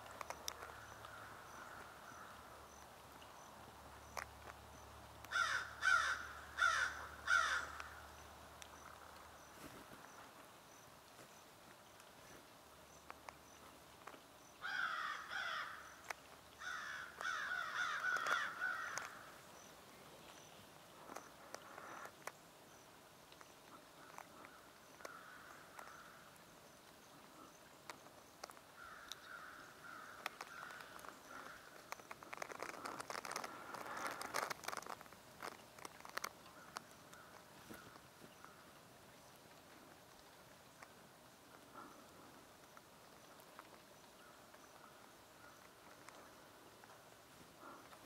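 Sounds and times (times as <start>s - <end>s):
crow cawing: 5.3s - 8.0s, 14.6s - 16.0s, 16.6s - 19.3s, 24.0s - 26.2s, 28.8s - 31.8s.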